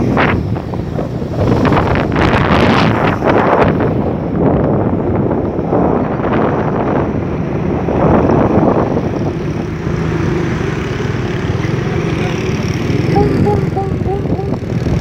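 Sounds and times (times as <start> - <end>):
wind buffeting microphone: 0.0 - 10.2, 12.6 - 15.0
vehicle engine hum: 0.0 - 15.0.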